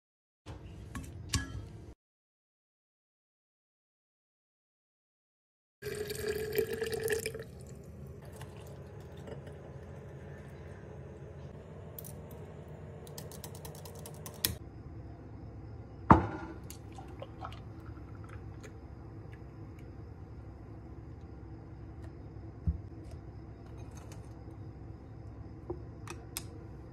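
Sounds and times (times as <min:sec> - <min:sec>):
liquid pouring into glass: 0:05.8 - 0:09.5, 0:16.7 - 0:18.7.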